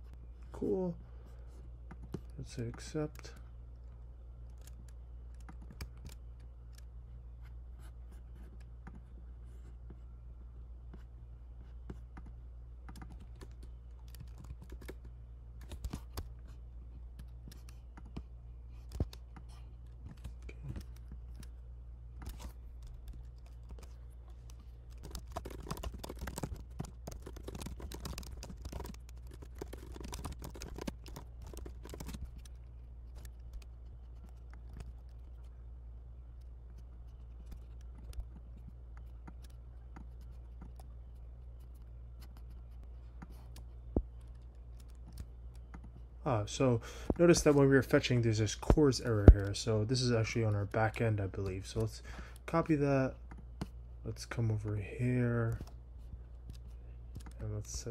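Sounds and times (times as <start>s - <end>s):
typing on computer keyboard: 12.9s - 15.0s, 22.2s - 35.5s.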